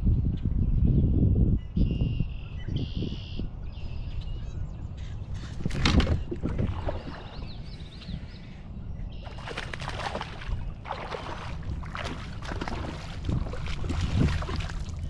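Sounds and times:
steady low rumble: 0:04.4 - 0:15.0
water splashing around kayak: 0:05.5 - 0:08.1, 0:09.2 - 0:15.0.

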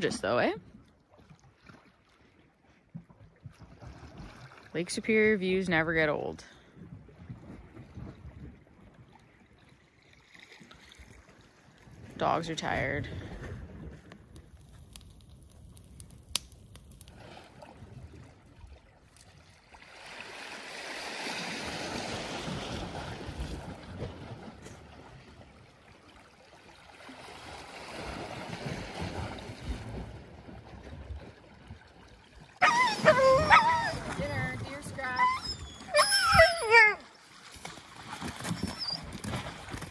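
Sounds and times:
water washing against ice: 0:12.2 - 0:17.6, 0:32.6 - 0:39.9
wood fire crackling: 0:14.1 - 0:17.3.

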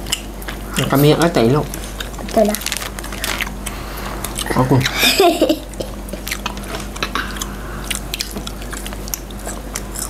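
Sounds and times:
chewing snack: 0:01.7 - 0:04.6, 0:05.8 - 0:10.0.

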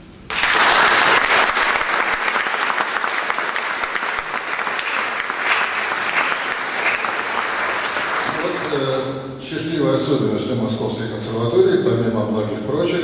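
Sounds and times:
audience applauding: 0:00.3 - 0:09.1.

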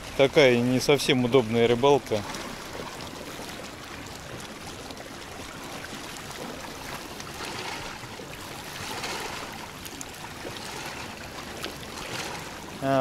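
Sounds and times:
waves lapping against rocks: 0:00.0 - 0:13.0.

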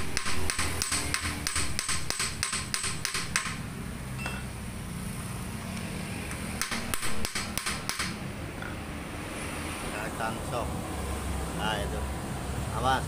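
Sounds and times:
workshop background noise: 0:00.0 - 0:13.0.

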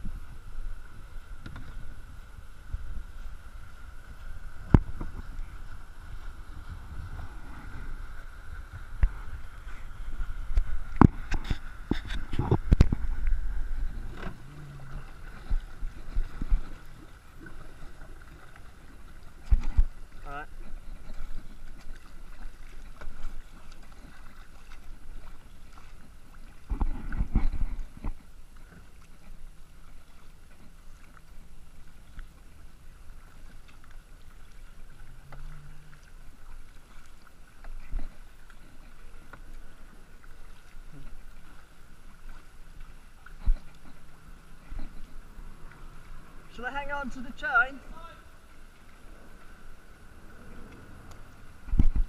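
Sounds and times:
low rumble: 0:00.0 - 0:21.6, 0:34.7 - 0:36.6, 0:47.8 - 0:52.0
paddle splashing water: 0:00.0 - 0:52.0
water lapping at hull: 0:00.0 - 0:52.0.

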